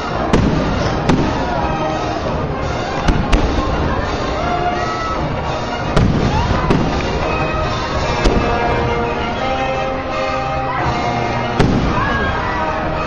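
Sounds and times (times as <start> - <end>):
music: 0.0 - 13.0.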